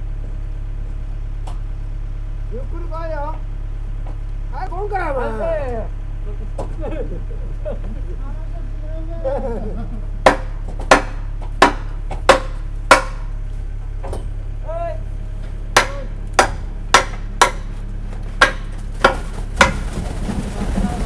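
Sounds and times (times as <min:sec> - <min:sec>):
low machine hum: 0:00.0 - 0:21.0
sharp hammer-like knocks: 0:10.2 - 0:13.3, 0:15.7 - 0:17.8, 0:18.4 - 0:19.8.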